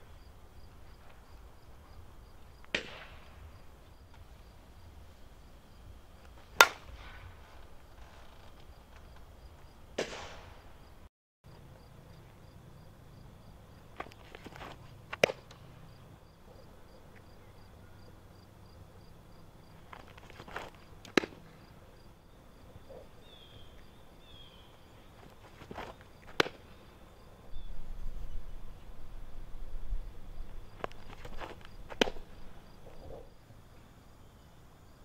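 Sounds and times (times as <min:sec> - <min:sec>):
ball smacking into glove: 0:06.6 - 0:07.2, 0:14.0 - 0:15.6, 0:19.9 - 0:21.4, 0:25.6 - 0:26.6, 0:30.8 - 0:32.3
insects buzzing: 0:10.6 - 0:35.0.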